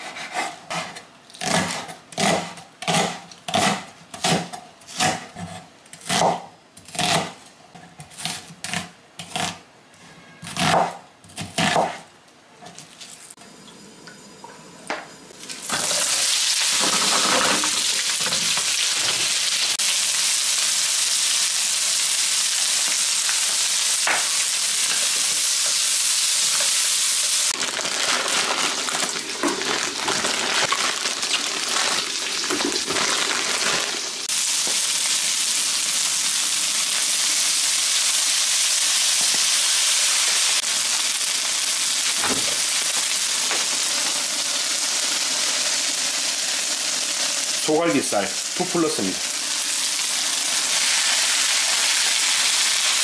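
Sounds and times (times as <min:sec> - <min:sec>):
oil sizzling in frying pan: 0:13.4 - 0:53.0.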